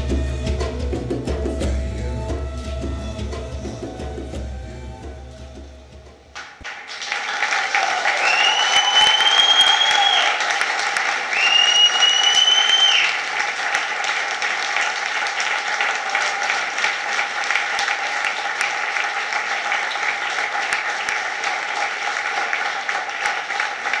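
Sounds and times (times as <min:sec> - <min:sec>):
audience applauding: 0:06.4 - 0:24.0
high whistle: 0:08.2 - 0:10.4, 0:11.3 - 0:13.2.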